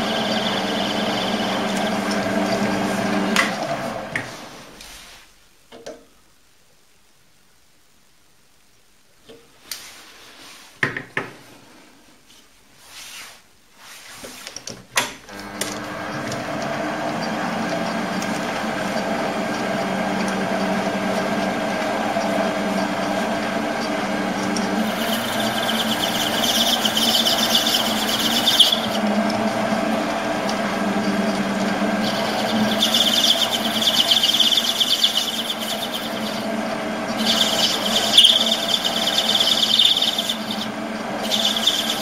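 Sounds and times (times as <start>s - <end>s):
lathe humming and whining: 0.0s - 4.5s, 15.4s - 42.0s
cutting tool hissing squeal: 24.8s - 29.0s, 32.0s - 36.5s, 37.1s - 42.0s.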